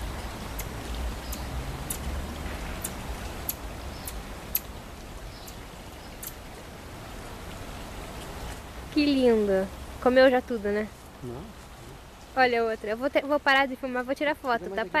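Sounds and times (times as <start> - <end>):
marmosets chirping: 1.2 - 2.0, 2.8 - 4.7, 5.3 - 6.4.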